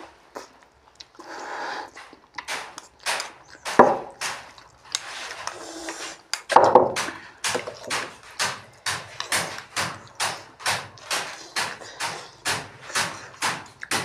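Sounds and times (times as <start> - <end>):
smacking chewing sounds: 0.0 - 14.0
people slurping noodles: 4.6 - 6.4.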